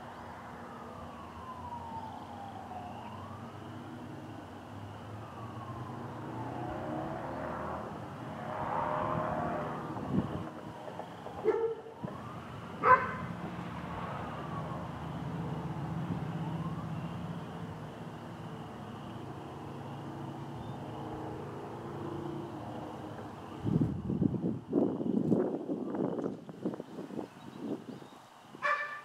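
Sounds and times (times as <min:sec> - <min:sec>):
siren wailing: 0:00.5 - 0:17.8.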